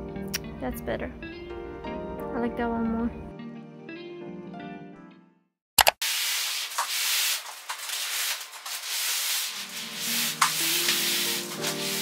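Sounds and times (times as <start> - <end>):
soft background music: 0.0 - 5.4, 9.6 - 12.0
plastic wrapping rustling: 6.0 - 12.0.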